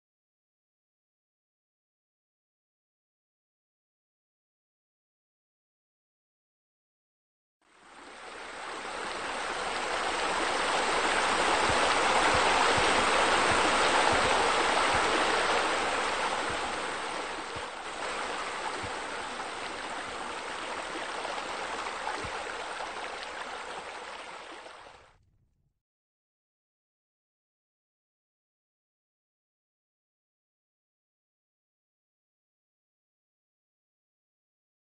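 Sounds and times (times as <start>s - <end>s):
running splashing water: 7.8s - 25.0s.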